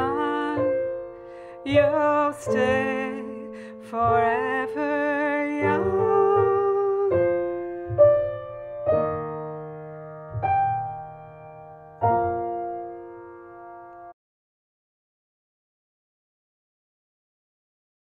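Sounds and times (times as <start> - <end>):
piano chords: 0.0 - 14.2.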